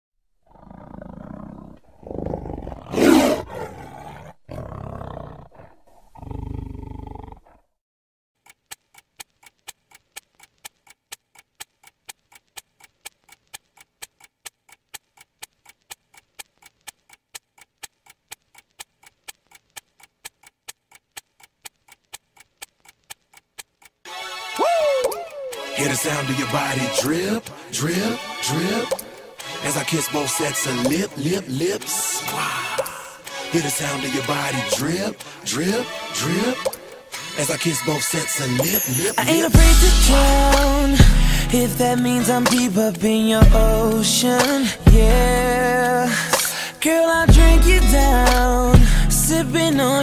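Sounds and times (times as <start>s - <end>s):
watch ticking: 8.4s - 24.1s.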